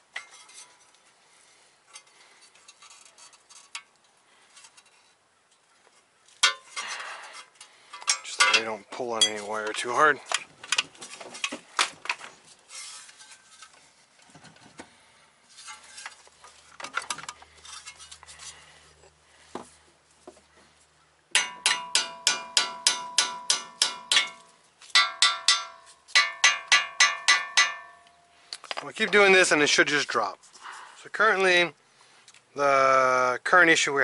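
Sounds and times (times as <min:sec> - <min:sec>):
tools clinking: 0:06.4 - 0:11.6, 0:21.4 - 0:28.8
hammer striking steel chisel: 0:21.3 - 0:28.1.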